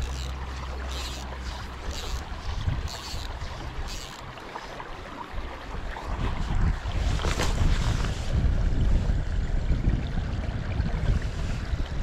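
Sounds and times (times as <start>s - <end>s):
wind buffeting microphone: 0.0s - 4.1s, 5.3s - 12.0s
river water rushing: 0.0s - 7.7s.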